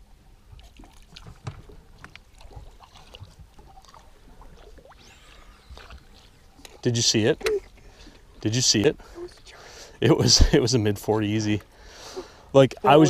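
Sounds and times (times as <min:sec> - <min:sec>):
water lapping against boat hull: 0:00.0 - 0:09.8.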